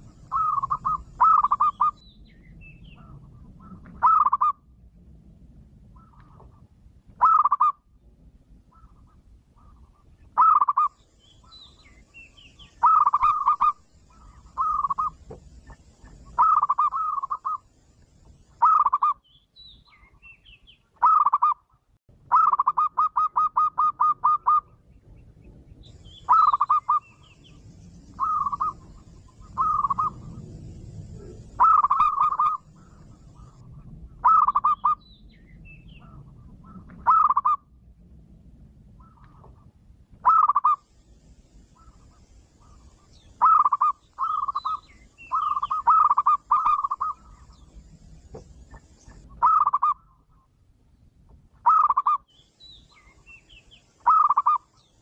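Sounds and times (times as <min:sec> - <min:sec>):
dove cooing: 0:00.0 - 0:02.0, 0:03.0 - 0:04.6, 0:07.2 - 0:07.8, 0:10.4 - 0:10.9, 0:12.8 - 0:15.4, 0:16.2 - 0:17.6, 0:21.0 - 0:21.6, 0:22.3 - 0:24.7, 0:26.2 - 0:27.2, 0:28.2 - 0:35.0, 0:36.0 - 0:37.6, 0:40.2 - 0:40.8, 0:41.8 - 0:47.6, 0:48.6 - 0:50.0, 0:51.6 - 0:52.2, 0:54.0 - 0:54.7.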